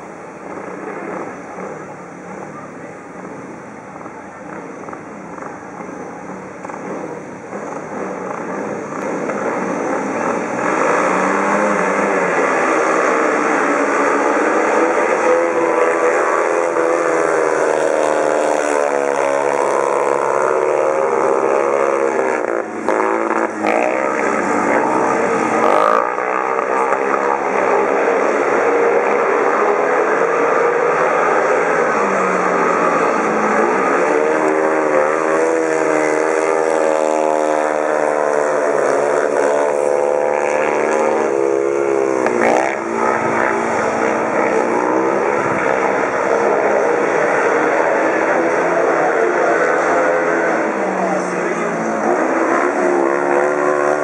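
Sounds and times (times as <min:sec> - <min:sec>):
motorcycle engines racing: 0:00.0 - 0:54.0.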